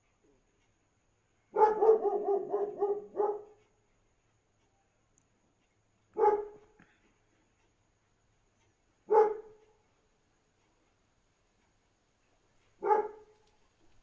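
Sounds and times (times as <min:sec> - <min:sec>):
dog barking: 0:01.5 - 0:03.6, 0:06.1 - 0:06.8, 0:09.1 - 0:09.6, 0:12.8 - 0:13.4.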